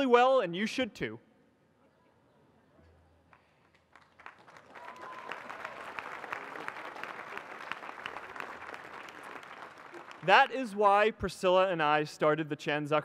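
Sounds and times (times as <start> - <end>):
crowd applauding: 3.7 - 11.1.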